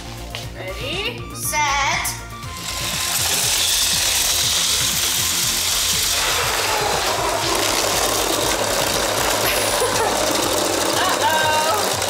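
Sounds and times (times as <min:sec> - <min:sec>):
electric motors whirring: 0:02.2 - 0:12.0
plastic gears rattling: 0:02.5 - 0:12.0.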